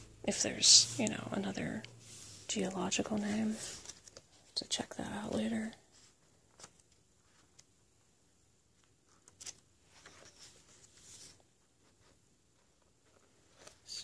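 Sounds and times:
book pages turning: 0.9s - 4.4s, 6.0s - 7.7s, 8.8s - 14.0s
paper rustling: 2.1s - 4.5s, 8.8s - 14.0s.

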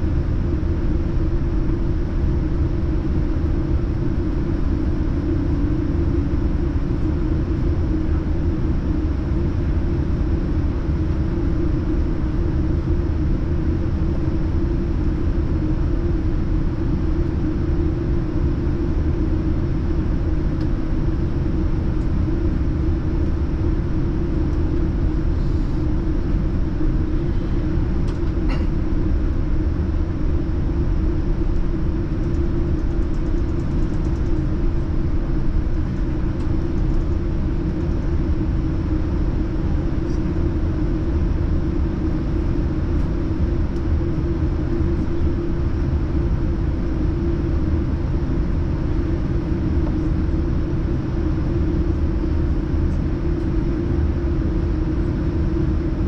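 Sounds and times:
airplane cabin engine rumble: 0.0s - 56.0s.

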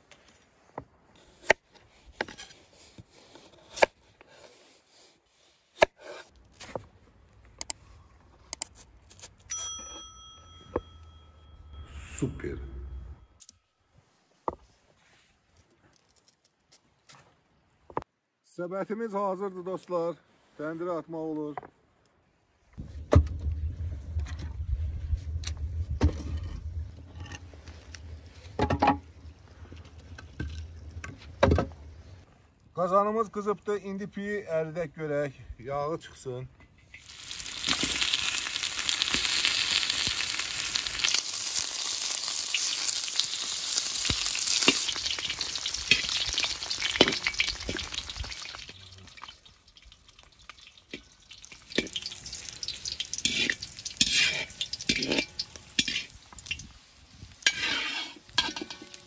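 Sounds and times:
skewer bell-like ringing: 9.5s - 13.4s
wooden logs knocking and clattering: 22.8s - 24.6s, 25.5s - 31.9s
steady low rumble: 22.8s - 31.0s.

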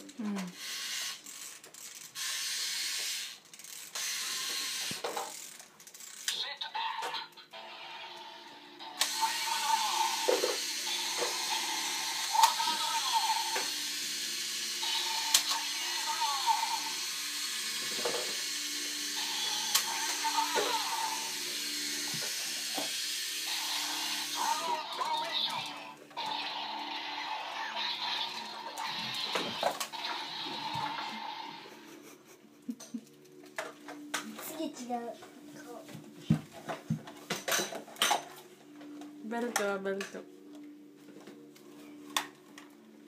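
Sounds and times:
plastic toy parts ratcheting: 0.0s - 6.5s
toy speaker electronic drone: 6.3s - 31.9s.

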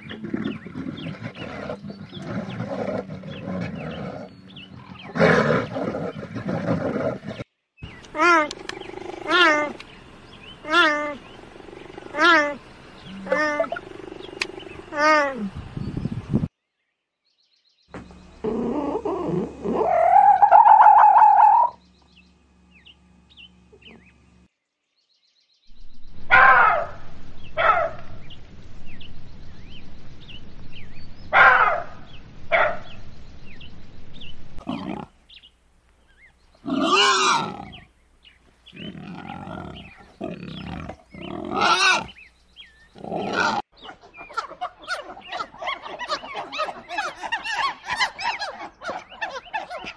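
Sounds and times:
animal calls: 8.0s - 9.9s, 10.5s - 15.6s, 18.4s - 21.8s, 34.6s - 35.2s, 36.6s - 37.9s, 38.7s - 49.9s.

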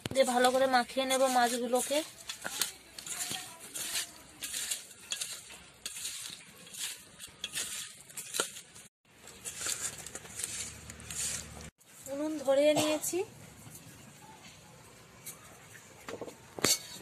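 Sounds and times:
fingers clinking on steel bowl: 0.1s - 8.8s.

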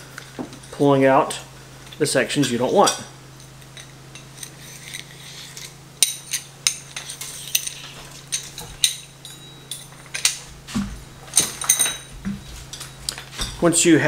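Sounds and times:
metal tubes clinking and rattling: 1.9s - 10.5s, 11.3s - 13.9s.

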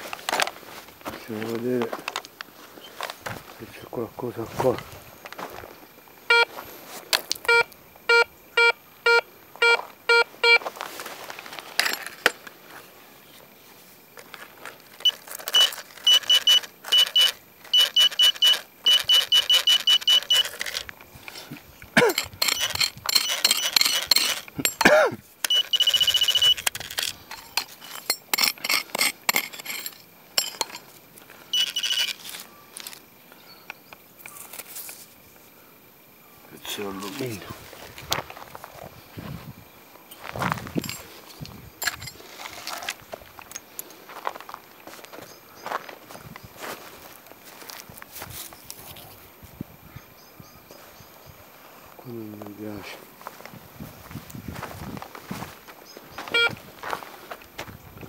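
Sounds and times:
digging in gravelly soil: 0.0s - 7.8s, 9.7s - 33.5s, 34.1s - 35.5s, 36.5s - 49.5s
metal detector beeps: 6.3s - 6.8s, 7.4s - 10.6s, 15.0s - 20.8s, 22.2s - 24.8s, 25.4s - 28.5s, 31.5s - 34.4s, 56.2s - 56.6s.

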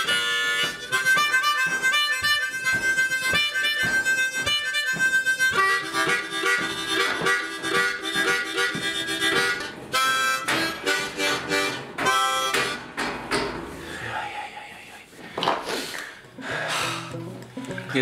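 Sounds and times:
blues harmonica playing: 0.0s - 13.0s.

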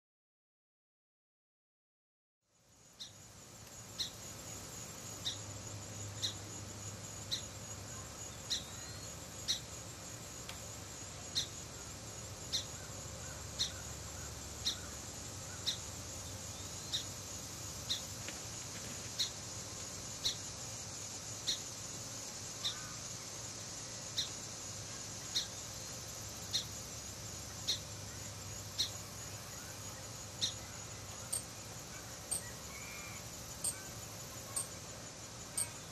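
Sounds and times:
insect chorus drone: 2.5s - 35.9s
short sharp insect call: 2.9s - 6.5s, 12.5s - 17.2s, 21.4s - 21.8s, 22.4s - 35.9s.

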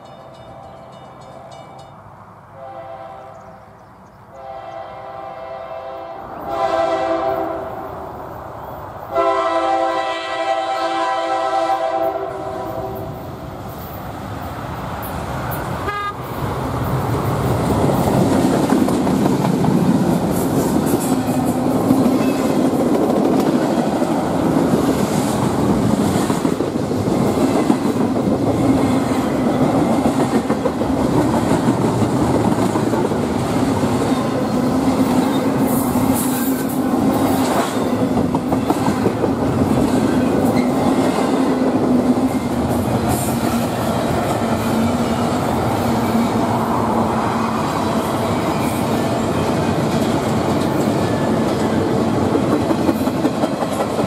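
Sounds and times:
train horn: 2.6s - 3.7s, 4.3s - 7.9s, 9.1s - 13.2s, 15.8s - 16.3s
freight train wheels clattering on rail: 16.4s - 54.0s.

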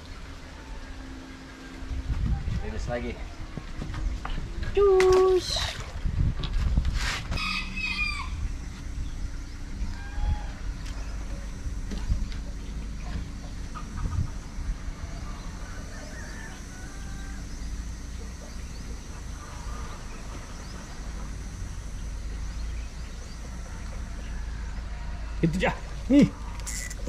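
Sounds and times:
steady low rumble: 0.0s - 27.0s
faint chickens clucking: 9.7s - 21.6s.

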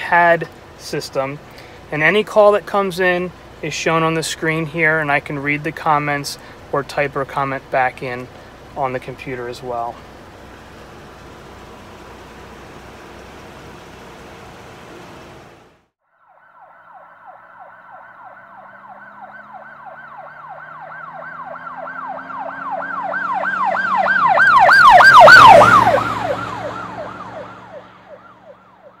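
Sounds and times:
vehicle engine drone: 0.0s - 15.9s, 16.8s - 29.0s
police siren yelp: 16.3s - 29.0s.

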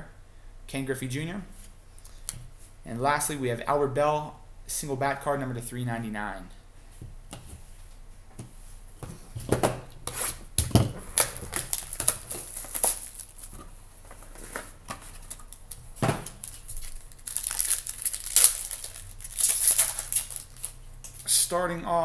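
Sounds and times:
foil pack tearing and crinkling: 11.1s - 13.6s, 15.1s - 21.3s.

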